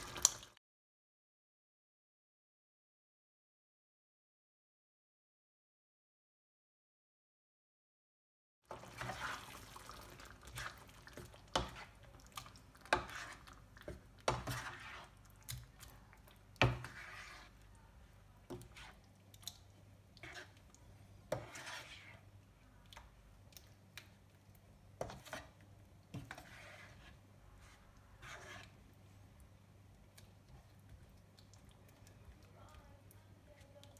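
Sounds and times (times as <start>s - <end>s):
spoon stirring thick sauce: 8.7s - 33.9s.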